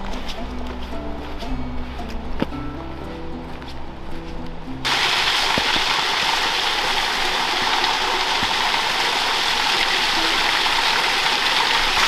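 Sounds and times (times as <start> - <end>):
small waterfall rushing: 4.9 - 12.0.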